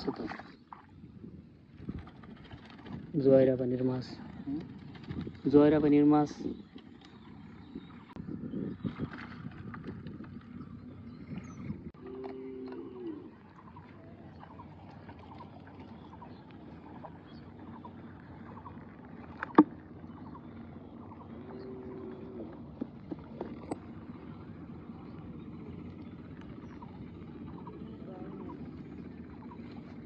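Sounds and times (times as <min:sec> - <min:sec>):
open-air background: 0:00.0 - 0:30.0
cow lowing faintly: 0:11.4 - 0:14.2, 0:21.4 - 0:23.4.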